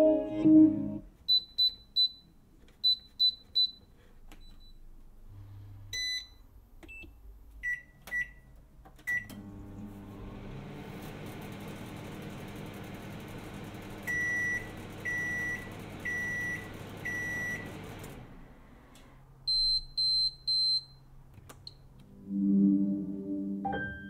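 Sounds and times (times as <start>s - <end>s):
appliance humming: 9.3s - 18.4s.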